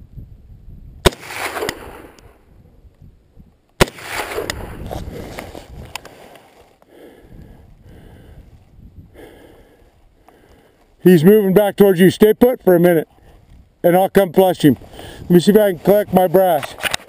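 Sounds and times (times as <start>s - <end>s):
gunshots with echo: 1.0s - 2.2s, 3.8s - 4.8s.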